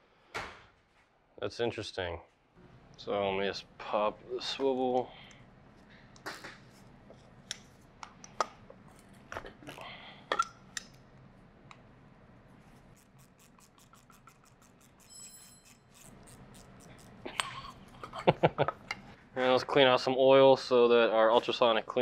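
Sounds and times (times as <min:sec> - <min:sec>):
metal hand tools clicking: 0:13.0 - 0:18.0.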